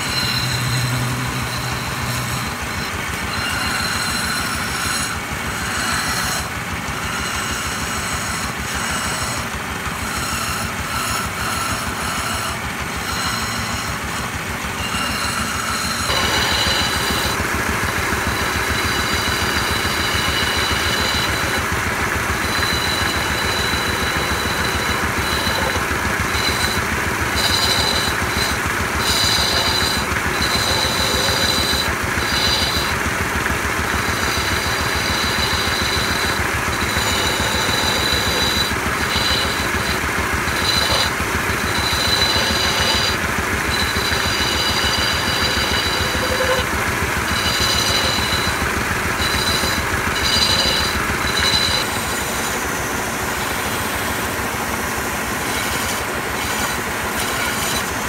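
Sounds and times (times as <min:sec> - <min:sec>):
chisel cutting spinning wood: 0:00.0 - 0:58.0
wood lathe rumbling: 0:00.0 - 0:58.0
high whine: 0:14.8 - 0:52.2.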